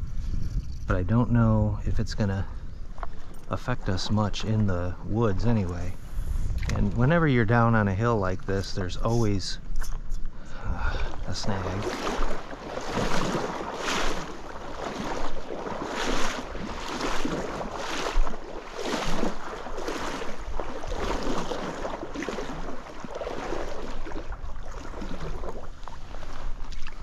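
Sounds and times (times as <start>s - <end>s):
wind buffeting microphone: 0.0s - 27.0s
water swishing around legs: 8.3s - 27.0s.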